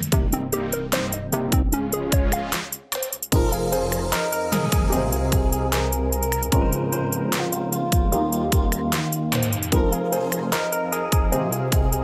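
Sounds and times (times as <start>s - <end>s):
deep kick drum hits: 3.4s - 3.7s, 4.7s - 5.7s, 6.5s - 6.8s, 8.0s - 8.8s, 11.2s - 12.0s
sustained synth chords: 3.4s - 7.3s.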